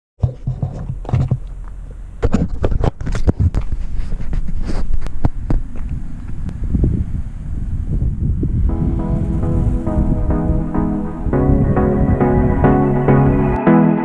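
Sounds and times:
microphone handling knocks and rubs: 0:00.2 - 0:01.5, 0:02.2 - 0:06.9
low rumble: 0:05.3 - 0:13.6.

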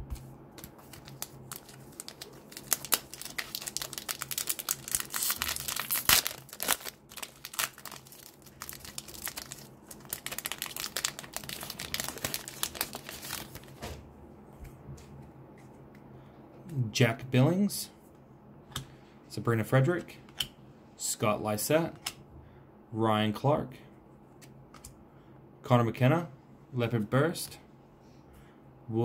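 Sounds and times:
foil wrapper crinkling and tearing: 0:00.6 - 0:13.8.

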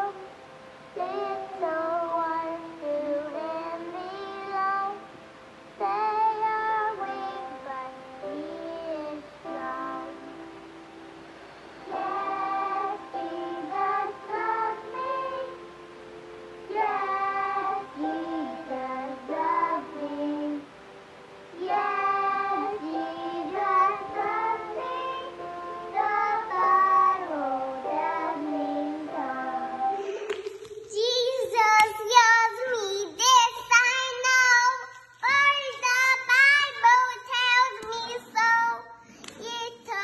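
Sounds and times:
toddler singing: 0:01.0 - 0:05.1, 0:05.8 - 0:10.2, 0:21.6 - 0:25.4, 0:26.0 - 0:40.0
backing music: 0:05.8 - 0:34.4.

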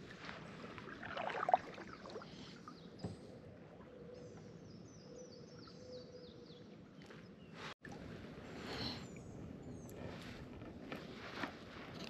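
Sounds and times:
paddle splashing and dripping: 0:00.6 - 0:02.6.

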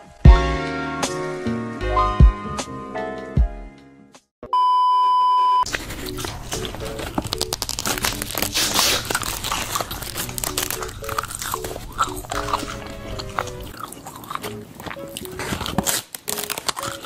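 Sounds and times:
background music: 0:00.0 - 0:04.3, 0:05.7 - 0:17.0
electronic beep: 0:04.5 - 0:05.7
paper being chewed: 0:05.6 - 0:17.0.

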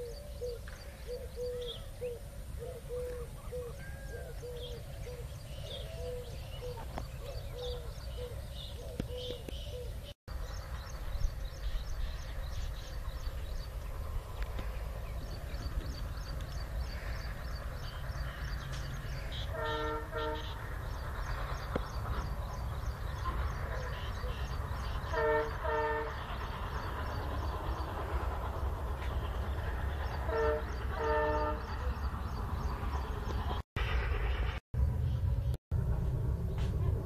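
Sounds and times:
moving vehicle rumble: 0:00.0 - 0:37.0
vehicle horn blasts: 0:19.3 - 0:20.6, 0:25.1 - 0:26.2, 0:30.3 - 0:31.7.

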